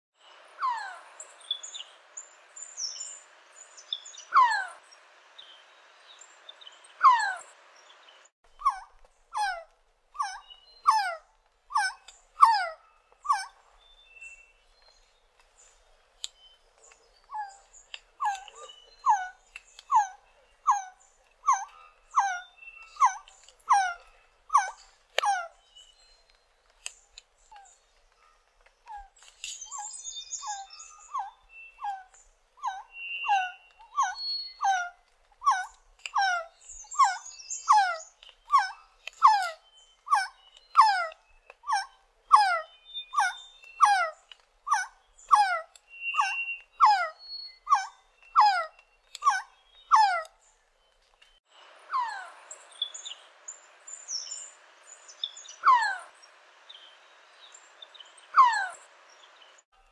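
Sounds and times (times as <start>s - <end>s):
bird calling downslurred notes: 8.5s - 15.0s, 17.2s - 50.4s.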